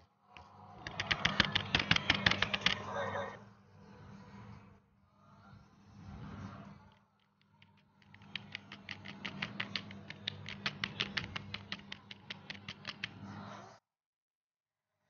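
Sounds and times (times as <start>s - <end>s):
rapid sharp clicking: 0.8s - 2.9s, 7.2s - 13.4s.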